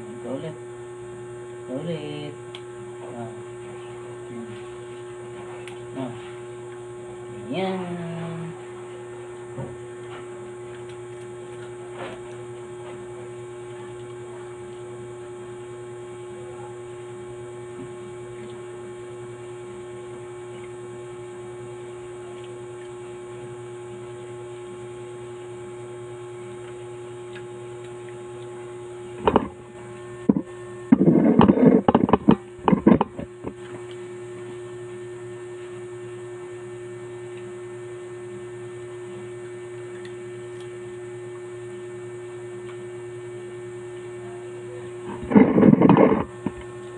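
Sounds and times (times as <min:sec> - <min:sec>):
electrical mains hum: 0:00.0 - 0:46.9.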